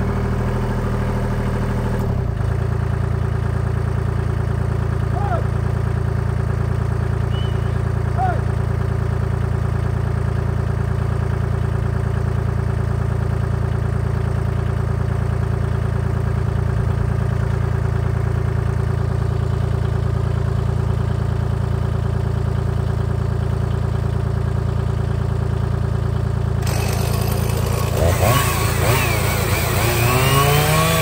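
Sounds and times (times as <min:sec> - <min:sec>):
tractor diesel engine running: 0:00.0 - 0:31.0.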